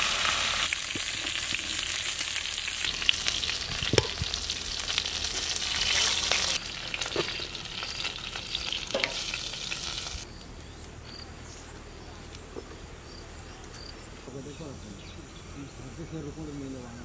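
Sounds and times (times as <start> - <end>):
chicken sizzling and crackling: 0.0 - 10.6.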